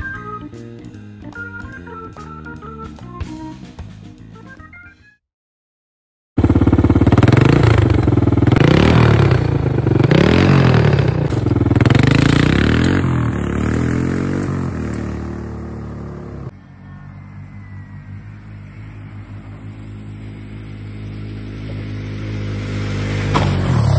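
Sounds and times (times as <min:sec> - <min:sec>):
quad bike engine revving: 0:06.4 - 0:16.5, 0:17.2 - 0:23.9.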